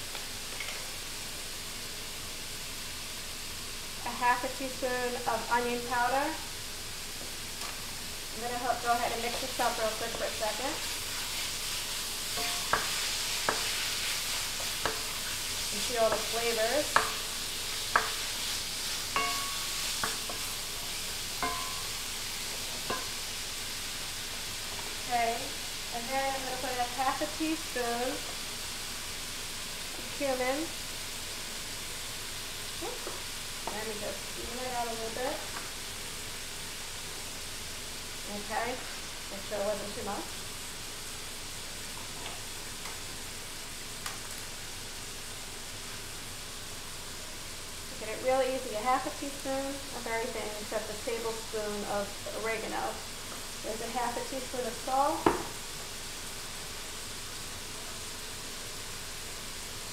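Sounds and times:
meat sizzling in a skillet: 0.0s - 59.9s
spoon knocking against pan: 16.9s - 17.3s, 17.9s - 18.2s, 19.2s - 20.5s, 21.4s - 22.0s, 22.9s - 23.2s.

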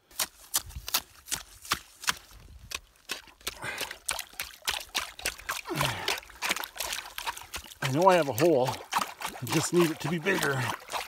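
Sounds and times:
water splashing: 3.0s - 11.0s.

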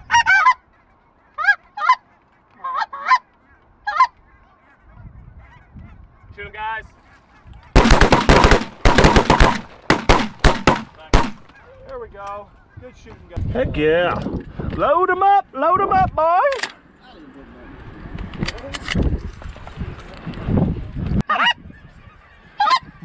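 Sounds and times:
geese honking: 0.0s - 6.3s, 21.2s - 23.0s
shotgun blasts: 7.8s - 11.5s.

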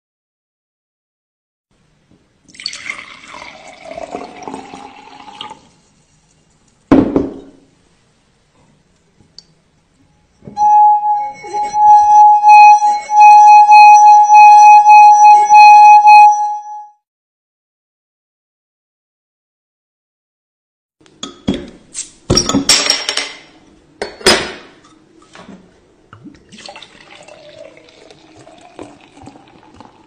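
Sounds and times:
water pouring into glass: 2.5s - 5.7s, 26.2s - 30.0s
knock: 6.9s - 7.6s
singing wine glass tone: 10.2s - 17.0s.

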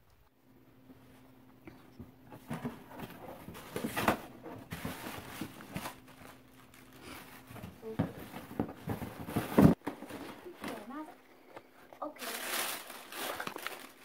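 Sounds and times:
cardboard box rustling: 2.4s - 11.1s, 12.2s - 14.0s.

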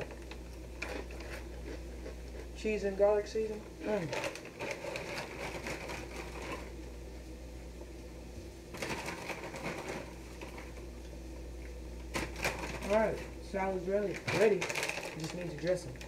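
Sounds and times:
croutons rattling: 3.9s - 6.6s, 12.2s - 16.0s
plastic bag crinkling: 3.9s - 6.7s, 12.1s - 16.0s.

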